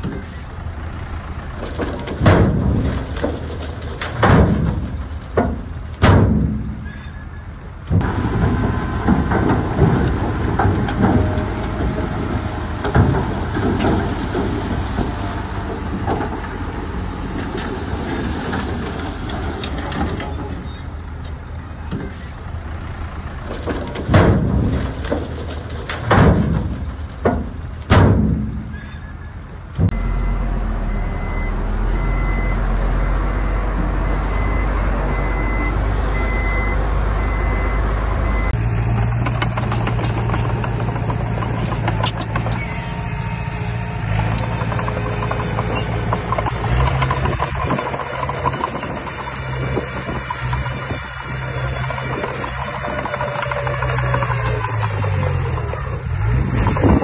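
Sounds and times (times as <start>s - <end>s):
heavy diesel machinery running: 0.0s - 57.0s
reversing alarm beeping: 29.9s - 38.6s.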